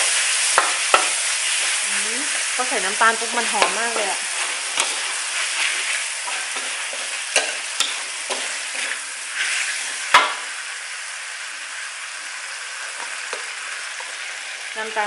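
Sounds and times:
pork sizzling in a wok: 0.0s - 15.0s
spatula clanking on wok: 0.5s - 1.2s, 3.6s - 5.1s, 6.2s - 9.0s, 10.1s - 10.4s
metal spatula scraping wok: 0.6s - 10.4s.

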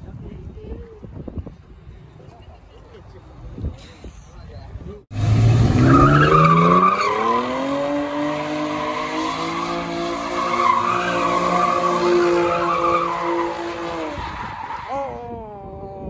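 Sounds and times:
car engine revving: 5.1s - 14.4s
tyres squealing on pavement: 5.8s - 15.0s.

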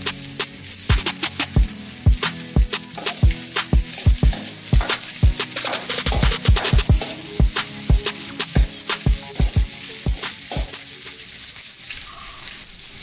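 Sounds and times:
food sizzling in hot oil: 0.0s - 13.0s
metal utensil scraping wok: 2.2s - 9.0s.

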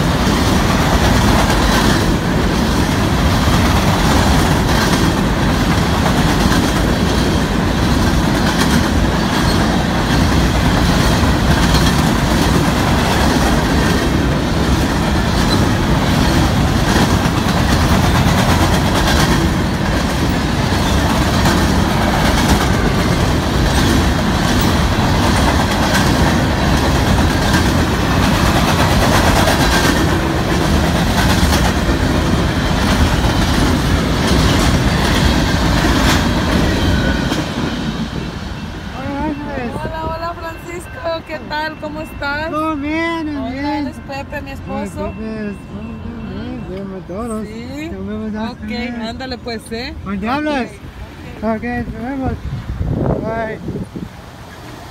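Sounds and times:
wheels clacking over rail joints: 0.0s - 39.0s
freight train rumble: 0.0s - 54.9s.

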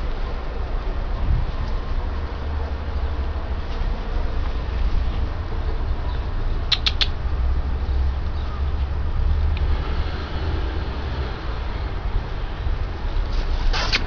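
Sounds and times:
wind rumble on microphone: 0.0s - 6.6s.

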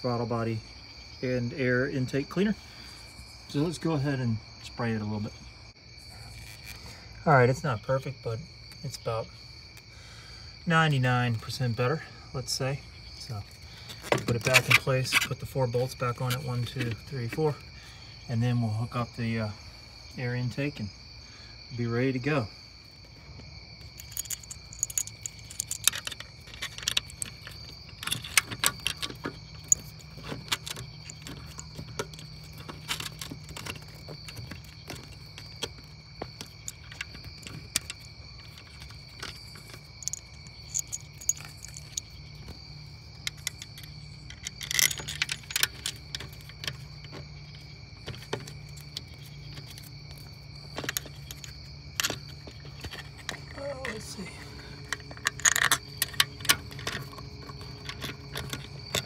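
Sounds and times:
crickets chirping: 0.0s - 59.0s
metallic clicks of tools and bolts: 23.9s - 35.8s, 36.4s - 42.2s, 43.2s - 47.2s, 48.0s - 59.0s.

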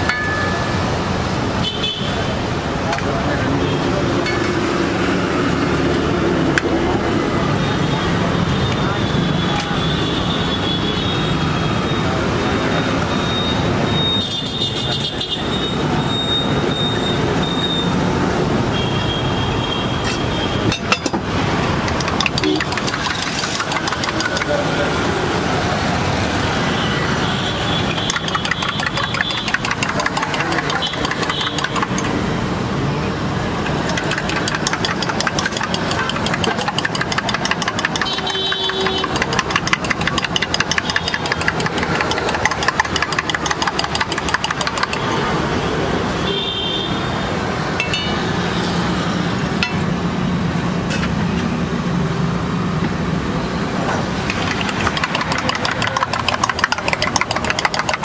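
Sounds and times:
street noise: 0.0s - 58.0s
engine running: 21.1s - 26.4s, 33.4s - 45.6s, 53.7s - 58.0s.

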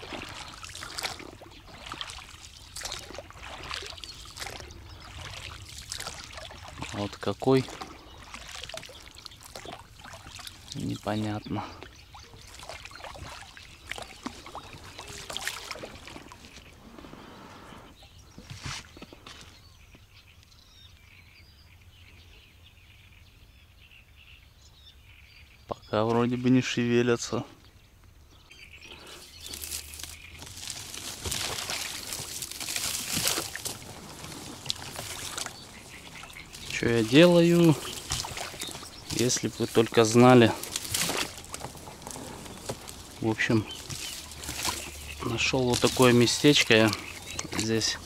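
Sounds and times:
water splashing and dripping: 0.0s - 16.8s, 29.0s - 48.0s.

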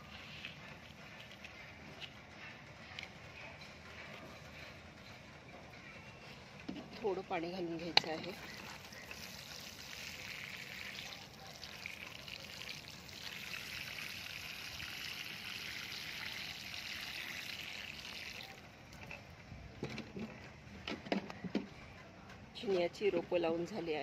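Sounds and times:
water sprinkling onto wet soil: 8.3s - 18.6s.

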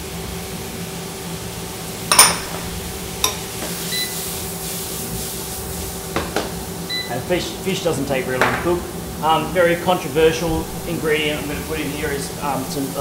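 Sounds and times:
steady hum: 0.0s - 13.0s
pan knocking: 2.1s - 3.7s
frying pan clanking: 2.1s - 3.8s.

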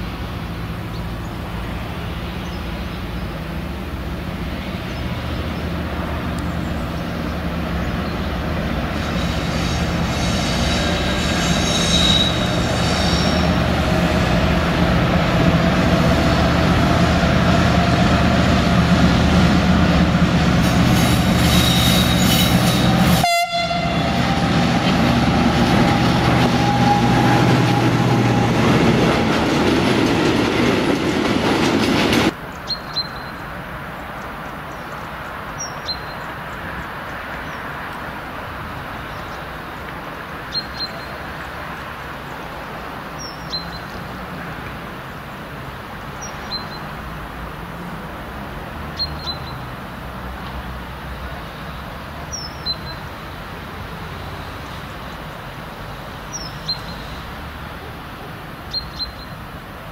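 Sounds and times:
locomotive engine drone: 0.0s - 32.5s.

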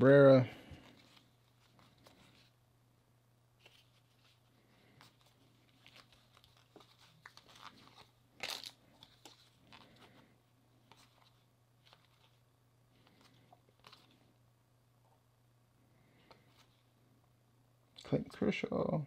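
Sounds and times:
cards rustling being thumbed: 3.6s - 10.1s, 13.0s - 14.2s.

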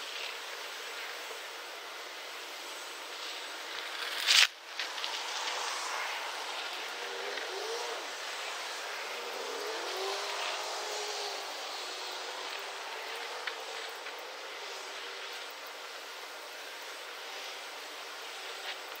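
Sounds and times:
faint rising hums: 4.8s - 18.7s.

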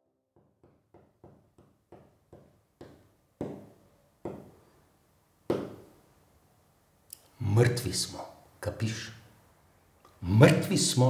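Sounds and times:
sharp knocks with echo: 5.5s - 5.9s.

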